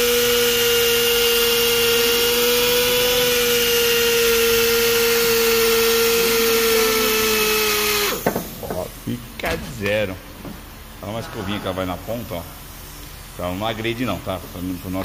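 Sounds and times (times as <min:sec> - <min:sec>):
die grinder whining on metal: 0:00.0 - 0:08.6.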